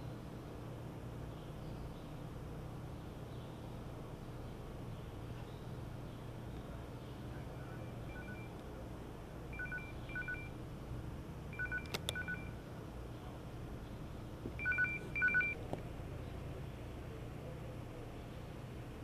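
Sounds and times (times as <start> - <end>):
short two-tone electronic beeps: 8.1 - 8.5, 9.6 - 10.5, 11.6 - 12.5, 14.6 - 15.6
sharp clicks: 11.7 - 12.3.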